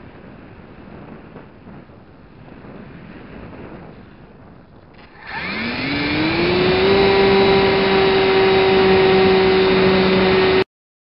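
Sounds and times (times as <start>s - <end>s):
model plane motor whine: 5.0s - 10.6s.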